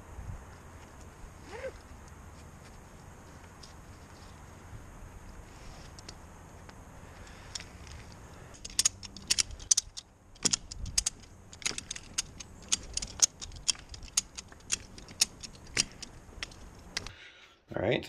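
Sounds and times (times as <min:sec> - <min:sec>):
ratchet strap clicking: 0:07.2 - 0:17.1.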